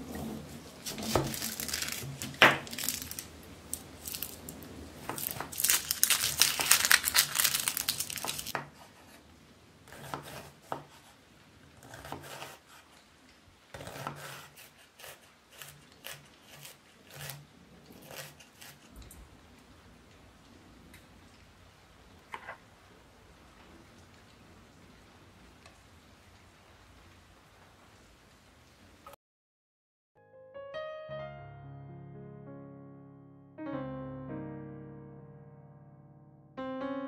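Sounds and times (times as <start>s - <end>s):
onion skin crackling: 0.5s - 9.1s, 13.7s - 19.0s.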